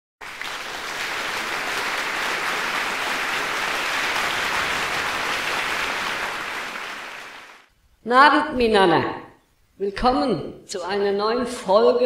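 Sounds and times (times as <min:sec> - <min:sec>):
audience applauding: 0:00.2 - 0:07.7.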